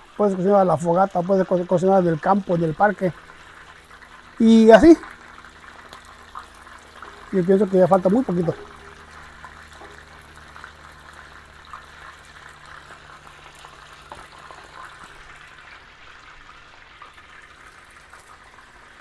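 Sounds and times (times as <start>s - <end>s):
low hum: 0.0s - 13.6s
chicken deep-frying in hot oil: 0.0s - 19.0s.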